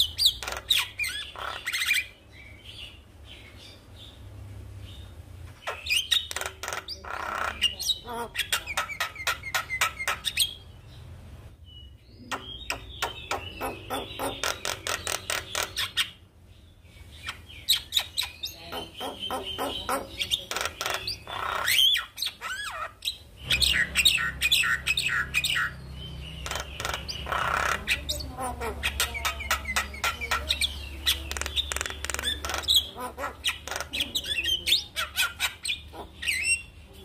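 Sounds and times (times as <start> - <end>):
myna harsh clicking chatter: 6.1 - 10.3, 18.2 - 22.8, 26.4 - 36.2.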